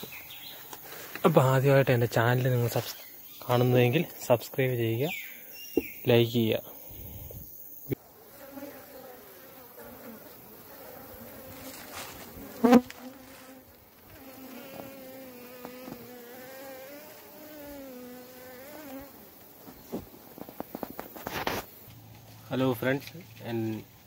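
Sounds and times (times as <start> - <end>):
bees buzzing: 6.0 - 20.6.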